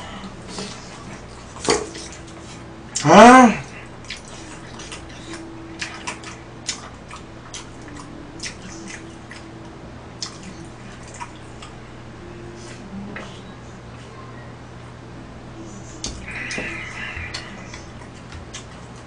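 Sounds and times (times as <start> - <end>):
faint steady hum: 0.0 - 19.0
person chewing: 1.9 - 9.5, 10.2 - 11.8, 16.0 - 19.0.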